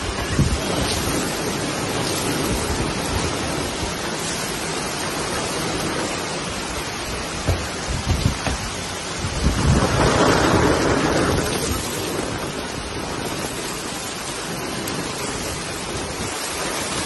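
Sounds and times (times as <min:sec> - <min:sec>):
heavy rain on pavement: 0:00.0 - 0:17.0
low thumps: 0:06.9 - 0:10.0.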